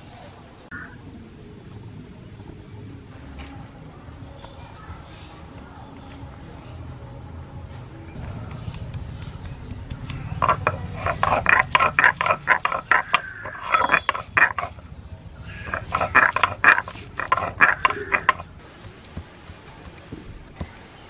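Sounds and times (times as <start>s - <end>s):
stone roller grinding on stone slab: 10.4s - 14.8s, 15.5s - 18.6s.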